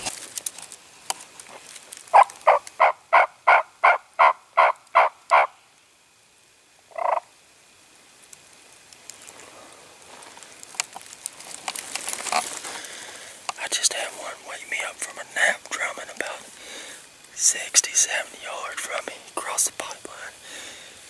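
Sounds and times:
turkey yelps: 0:02.1 - 0:05.6.

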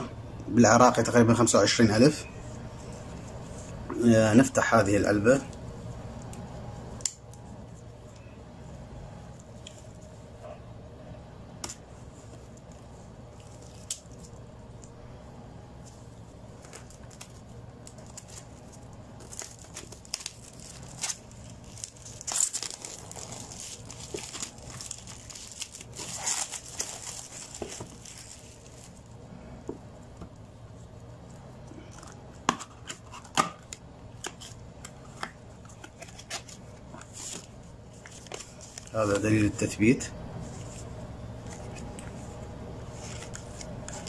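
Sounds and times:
plastic shrink-wrap tearing and crinkling: 0:16.6 - 0:29.1.

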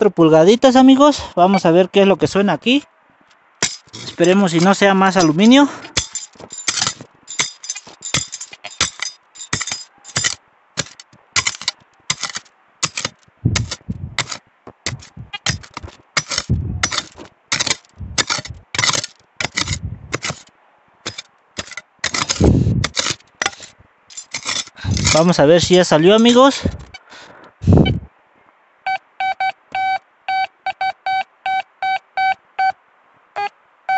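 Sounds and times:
dull thuds: 0:03.6 - 0:20.4
digging tool scraping stony soil: 0:03.6 - 0:28.0.

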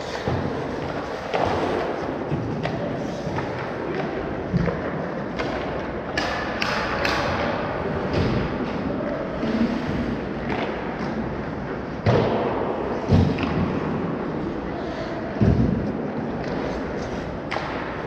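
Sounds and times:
hockey sticks and puck knocking: 0:00.0 - 0:08.9, 0:12.0 - 0:14.0, 0:15.4 - 0:18.0
steady background noise: 0:00.0 - 0:18.0.

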